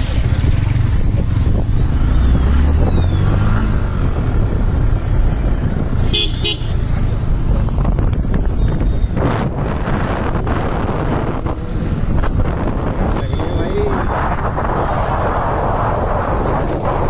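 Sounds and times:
vehicle engine and road noise: 0.0 - 17.0
vehicle horn tooting: 6.0 - 6.8.

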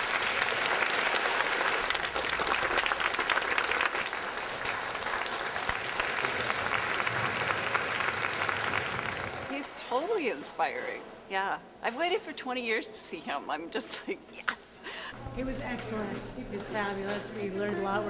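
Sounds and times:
large audience clapping: 0.0 - 9.6.

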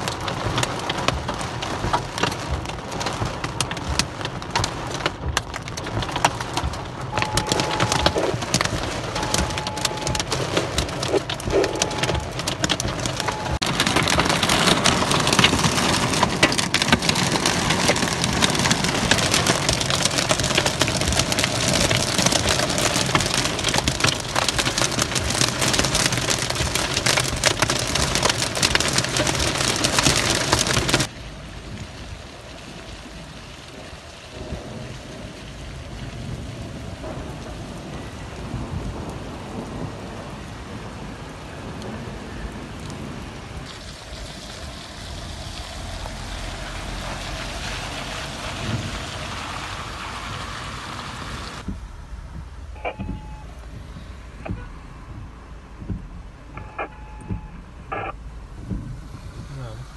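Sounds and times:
heavy rain drumming on car roof: 0.0 - 59.9
rain hissing on flooded street: 0.0 - 59.9.

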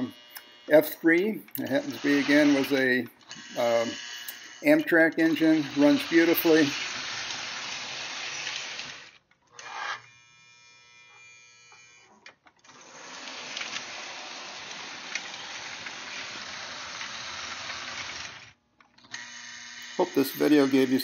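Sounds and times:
model train motors whirring: 0.0 - 10.2, 11.1 - 21.0.

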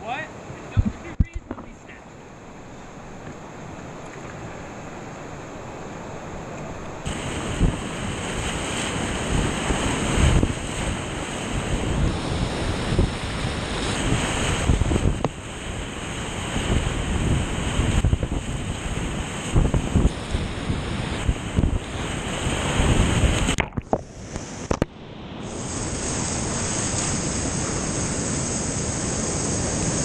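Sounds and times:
whitewater rapids roaring: 0.0 - 18.0, 18.6 - 30.0
wind buffeting microphone: 0.5 - 1.8, 7.0 - 24.9
short thumps: 0.7 - 1.8, 23.5 - 24.9
water splashes: 18.0 - 30.0.

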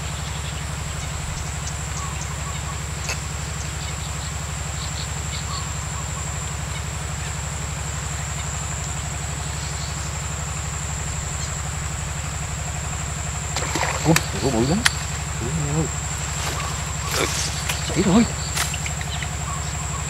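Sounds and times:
low throbbing drone: 0.0 - 20.0
high-pitched insect buzz: 13.6 - 20.0.

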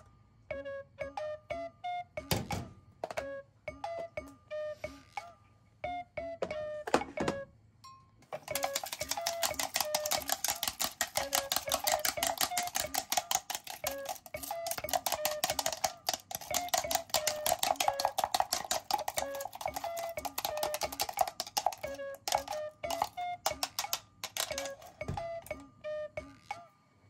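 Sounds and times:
chopsticks beating eggs: 8.3 - 25.0.

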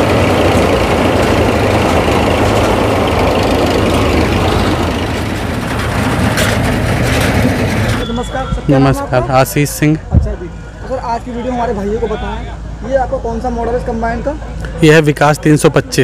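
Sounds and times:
harvester mechanical clatter: 0.0 - 8.7
tractor diesel engine hum: 0.0 - 16.0.

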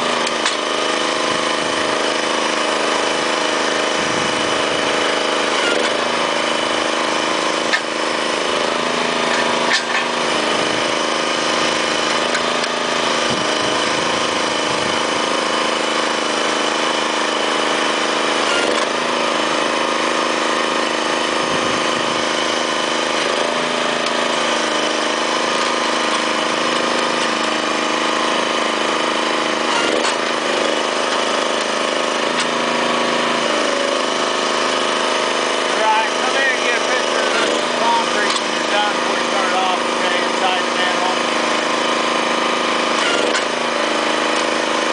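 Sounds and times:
small engine running: 0.0 - 44.9
sharp metal clanks: 9.2 - 10.2.

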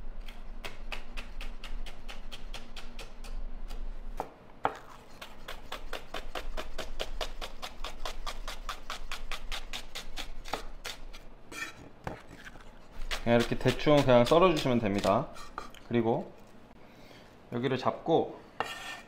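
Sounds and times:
knife slicing onion on wood: 0.2 - 15.8.

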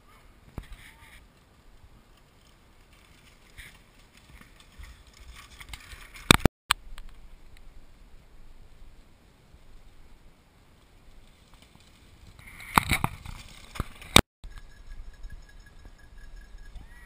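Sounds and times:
bike clattering over stones: 1.4 - 6.5, 11.1 - 14.8.

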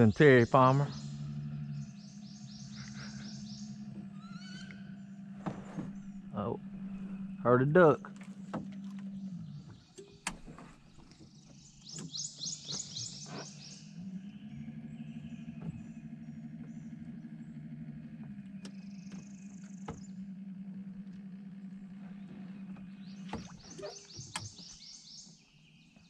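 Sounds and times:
bird chirping: 0.0 - 7.5, 9.0 - 17.5, 22.0 - 26.0
low motor hum: 0.0 - 26.0.

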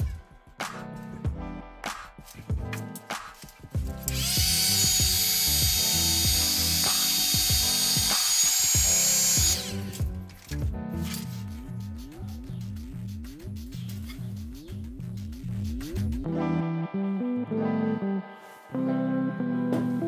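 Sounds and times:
background music with bass line: 0.0 - 20.0
heat gun blowing: 4.1 - 10.0.

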